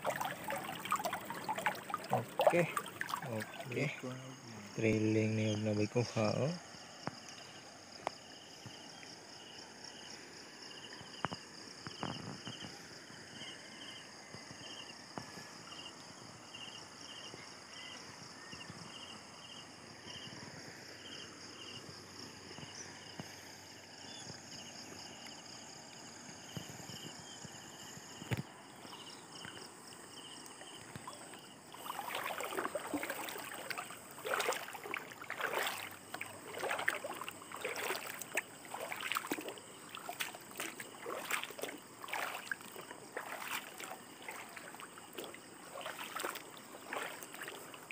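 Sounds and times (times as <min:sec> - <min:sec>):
splashing of shallow water: 0:00.0 - 0:04.4, 0:21.8 - 0:47.9
river flowing: 0:00.0 - 0:04.8, 0:28.0 - 0:47.9
insects chirping: 0:00.0 - 0:47.9.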